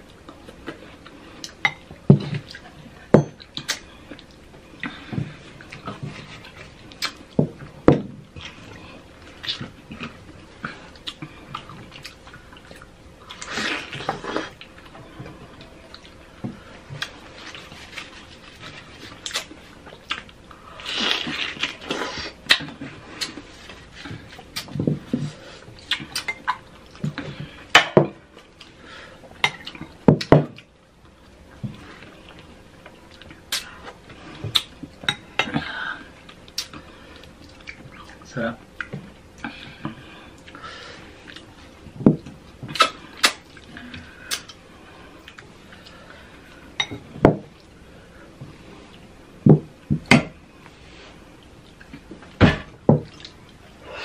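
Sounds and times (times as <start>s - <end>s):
wet chewing: 17.0s - 24.8s.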